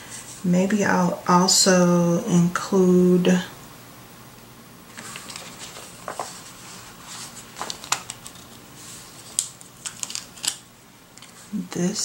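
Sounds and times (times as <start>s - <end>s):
sticker peeled off backing: 4.9s - 10.6s.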